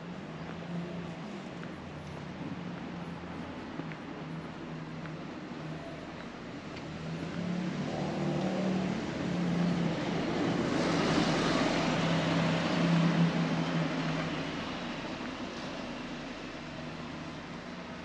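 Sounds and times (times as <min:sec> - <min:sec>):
car driving past: 0:06.9 - 0:16.1.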